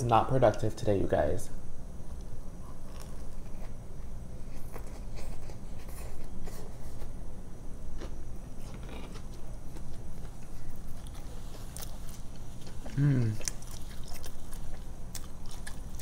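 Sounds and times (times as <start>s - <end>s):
close-up chewing: 2.6s - 7.1s, 8.0s - 16.0s.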